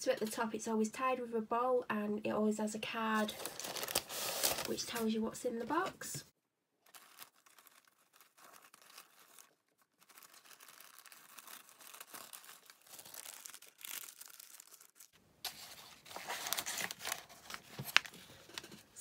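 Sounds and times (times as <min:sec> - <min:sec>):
plastic sachet crinkling: 0:03.2 - 0:05.1, 0:06.8 - 0:18.3
tissue paper rustling: 0:03.2 - 0:05.2, 0:06.9 - 0:18.8.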